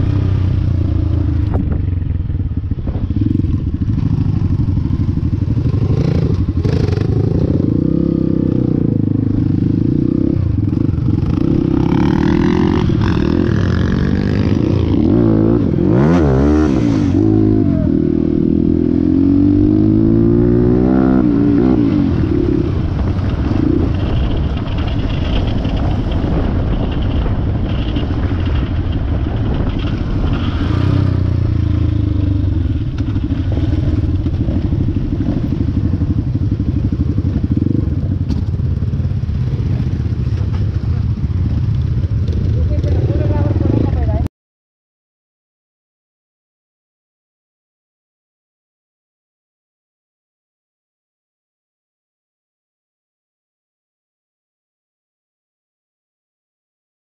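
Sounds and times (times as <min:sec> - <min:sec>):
motorcycle engine running: 0:00.0 - 0:44.3.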